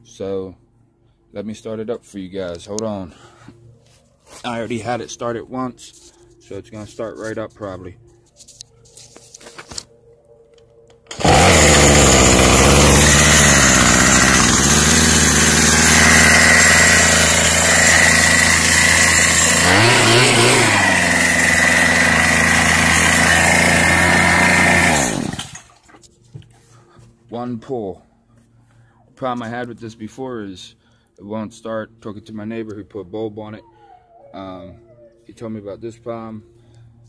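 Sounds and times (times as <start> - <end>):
string trimmer engine idling: 11.1 - 25.8.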